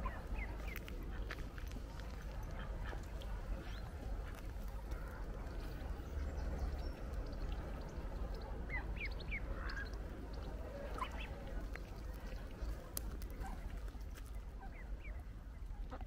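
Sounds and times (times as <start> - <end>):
wind rumble on microphone: 0.0 - 16.0
waterfowl calling: 8.5 - 12.4.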